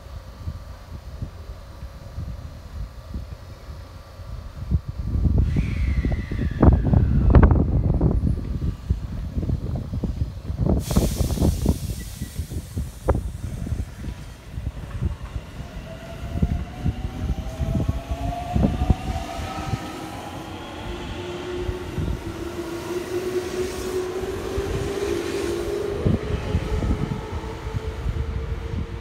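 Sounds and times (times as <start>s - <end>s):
low rumble: 4.6s - 10.8s
train traction motors whining: 11.3s - 29.0s.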